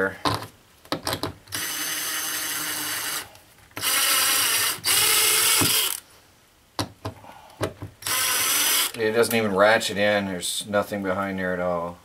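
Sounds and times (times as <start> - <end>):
cordless drill driving screw: 1.5 - 6.0, 8.0 - 9.0.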